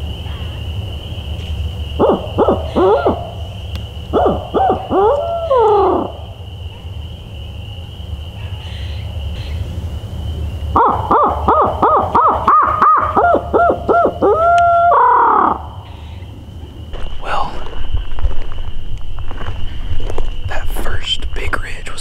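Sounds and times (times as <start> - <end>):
owl hooting: 1.4 - 6.4, 10.7 - 16.4.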